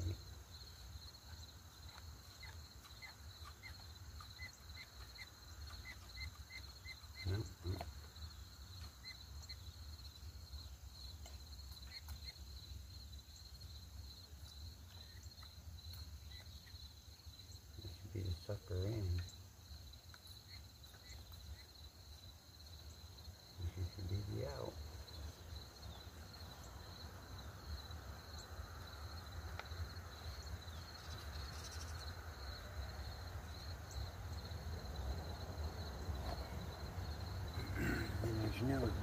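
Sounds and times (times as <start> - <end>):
high pulsing insect trill: 0.0 - 39.0.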